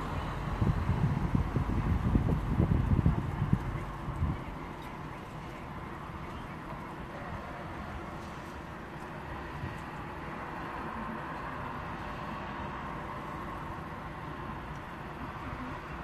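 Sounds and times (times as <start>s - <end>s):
wind buffeting microphone: 0.0s - 4.6s
distant road traffic hum: 0.0s - 16.0s.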